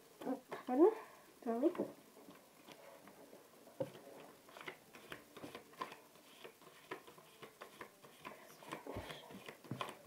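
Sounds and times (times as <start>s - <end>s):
playing cards being handled: 3.8s - 10.0s.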